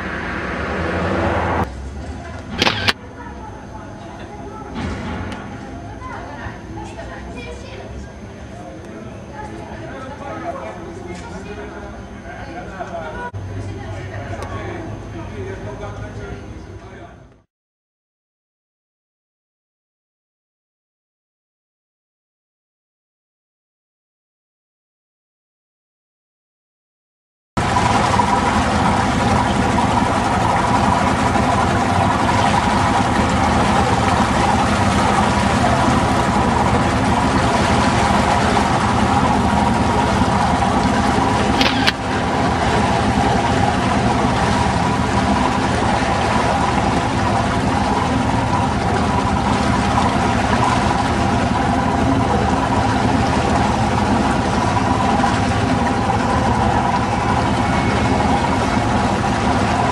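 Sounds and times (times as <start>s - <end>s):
boat engine droning: 0.0s - 17.5s, 27.6s - 59.9s
short click: 2.6s - 3.0s, 41.6s - 42.0s.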